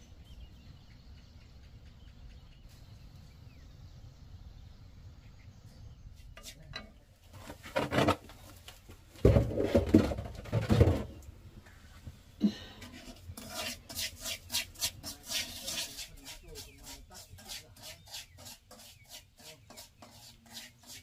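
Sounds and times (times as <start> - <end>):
faint low background noise: 0.0 - 13.8
rice stirred in metal wok: 12.9 - 21.0.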